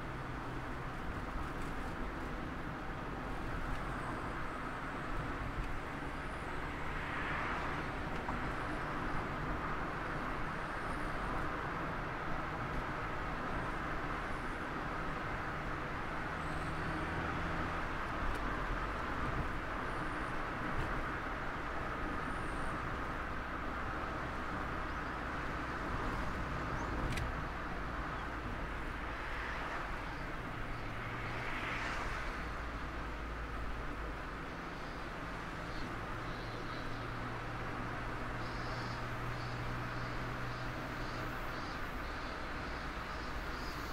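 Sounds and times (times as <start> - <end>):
car wind and road noise: 0.0 - 43.9
low engine hum: 0.0 - 43.9.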